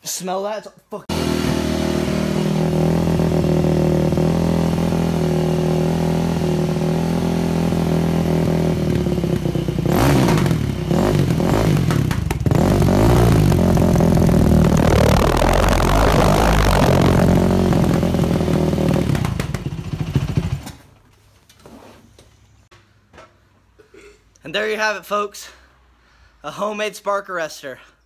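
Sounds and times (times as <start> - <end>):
dirt bike engine revving: 1.1 - 20.6.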